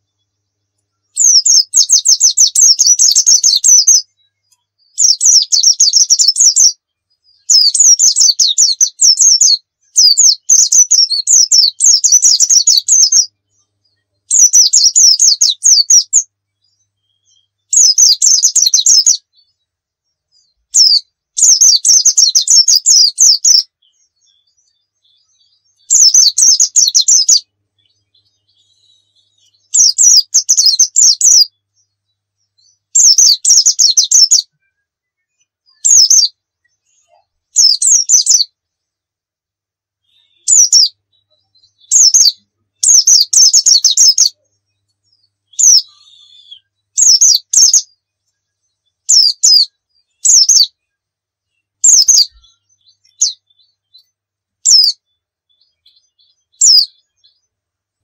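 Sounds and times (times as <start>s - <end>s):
bird twittering: 1.1s - 13.6s, 14.3s - 19.6s, 20.4s - 31.9s, 32.5s - 34.5s, 35.7s - 38.5s, 40.1s - 48.0s, 49.0s - 50.7s, 51.8s - 57.5s.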